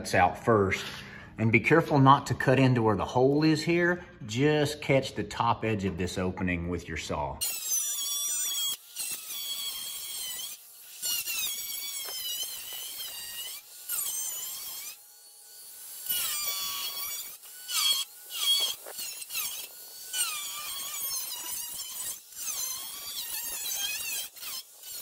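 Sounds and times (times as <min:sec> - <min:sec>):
angle grinder cutting sheet metal: 0:07.4 - 0:25.0.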